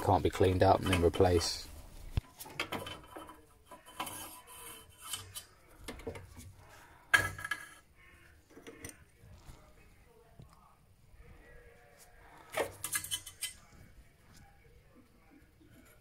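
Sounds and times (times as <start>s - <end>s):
gloved hand handling wiring: 0.4s - 9.8s, 12.0s - 14.6s.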